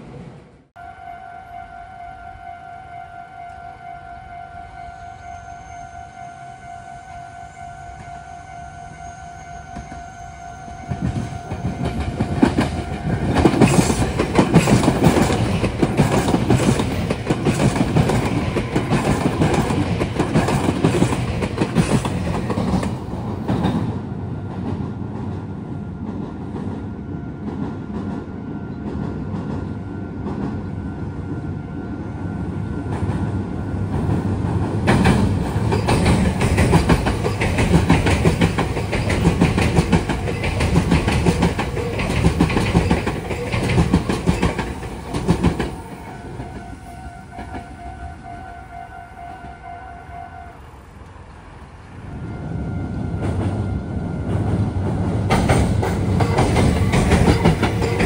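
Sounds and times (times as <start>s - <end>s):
electric train passing: 0.0s - 58.0s
train wheels clacking over rail joints: 10.9s - 23.9s, 33.9s - 46.7s, 54.3s - 58.0s.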